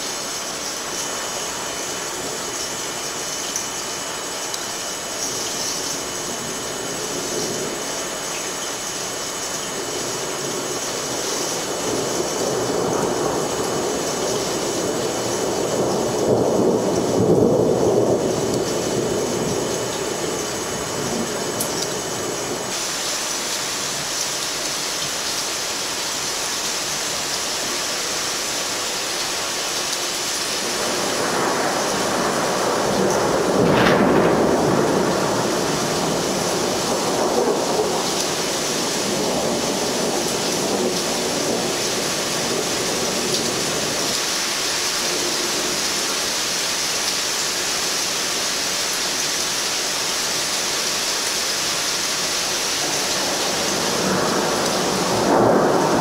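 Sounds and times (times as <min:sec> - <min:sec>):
steady rain hiss: 0:00.0 - 0:56.0
thunder rolling: 0:04.8 - 0:22.9, 0:30.4 - 0:46.3, 0:52.8 - 0:56.0.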